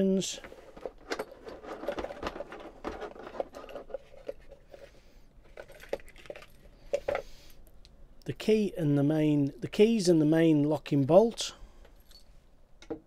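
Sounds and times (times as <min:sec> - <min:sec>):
cardboard rustling and scraping: 0:00.5 - 0:05.6.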